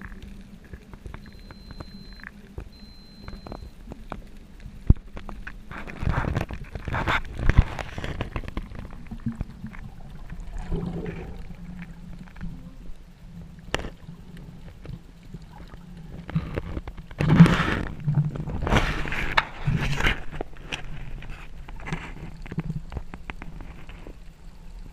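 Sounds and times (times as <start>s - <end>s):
low steady hum: 0.0s - 24.9s
underwater gurgling and sloshing: 0.0s - 24.9s
rushing gurgling bursts: 6.0s - 13.5s.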